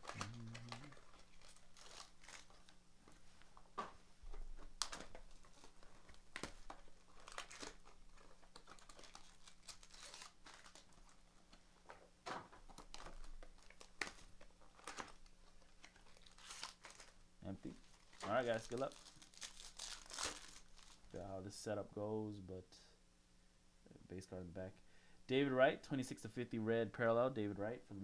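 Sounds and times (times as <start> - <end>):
plastic wrap crinkling and tearing: 0.0 - 2.8, 4.6 - 11.6, 12.6 - 21.2.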